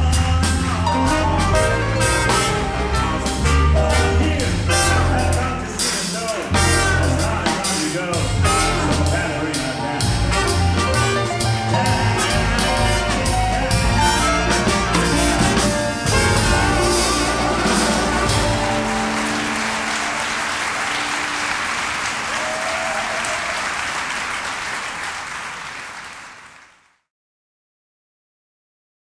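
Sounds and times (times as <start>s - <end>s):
orchestra playing: 0.0s - 22.7s
audience applause: 16.3s - 27.0s.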